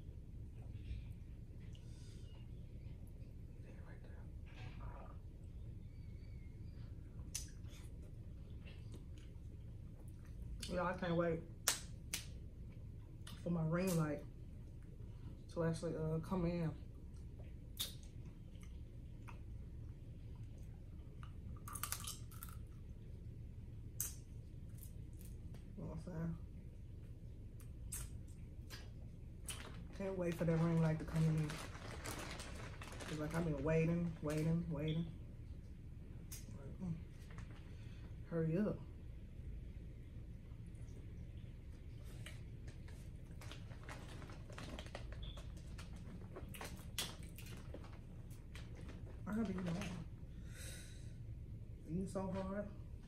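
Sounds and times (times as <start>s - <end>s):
plastic bag crinkling: 29.4s - 34.5s, 42.8s - 50.1s.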